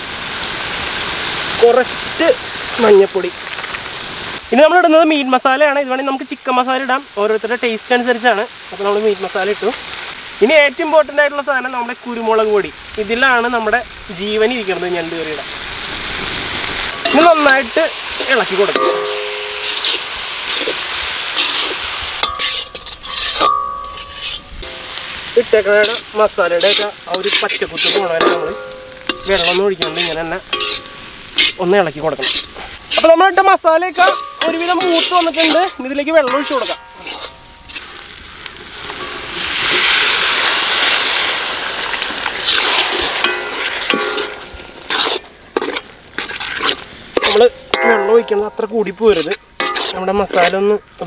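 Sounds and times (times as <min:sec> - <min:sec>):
masala sizzling in a pan: 0:00.0 - 0:51.0
ladle stirring and scraping: 0:16.8 - 0:33.3, 0:33.9 - 0:40.5, 0:42.0 - 0:50.6.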